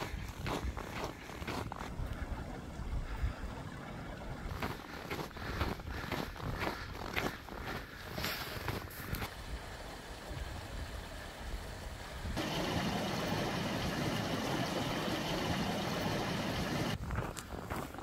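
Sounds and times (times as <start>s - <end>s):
footsteps in snow: 0.0s - 2.3s, 4.5s - 9.3s, 16.9s - 18.0s
mountain stream rushing: 9.1s - 17.0s.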